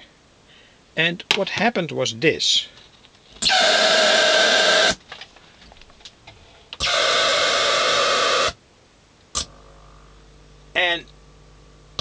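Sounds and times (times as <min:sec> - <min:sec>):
amplifier harsh buzzing: 0:03.4 - 0:05.0, 0:06.8 - 0:08.7, 0:09.3 - 0:12.0.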